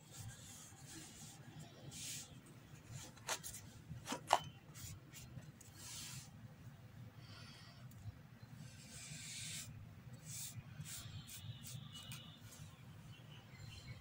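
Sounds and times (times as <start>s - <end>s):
paintbrush swishing: 0.0s - 2.4s, 8.9s - 12.7s.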